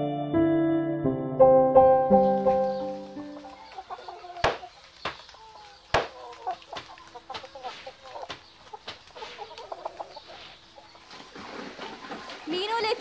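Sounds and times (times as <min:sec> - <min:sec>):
hens clucking: 0:02.5 - 0:13.0
wet clothes slapped on stone: 0:04.4 - 0:09.0.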